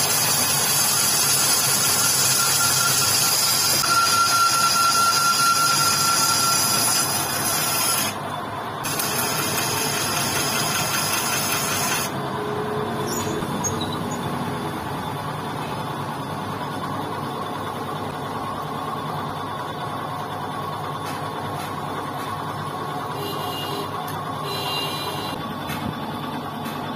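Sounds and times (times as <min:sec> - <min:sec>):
lathe cutting metal: 0:00.0 - 0:12.3
lathe running: 0:00.0 - 0:20.9.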